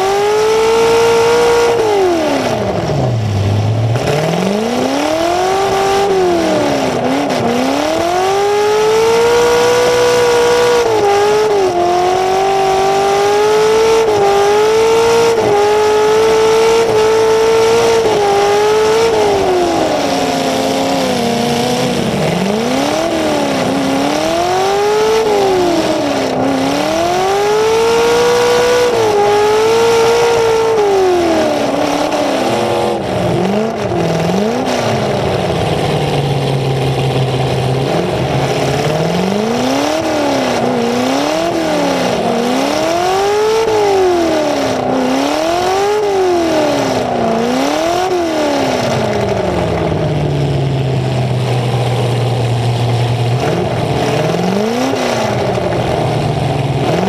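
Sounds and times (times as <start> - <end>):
car engine revving: 0.0 - 57.0.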